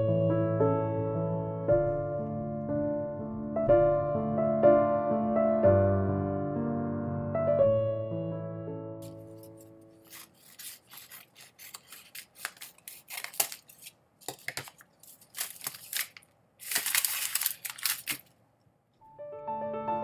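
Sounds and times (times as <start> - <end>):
scissors snipping paper: 9.0 - 18.3
paper rustling: 9.0 - 18.4.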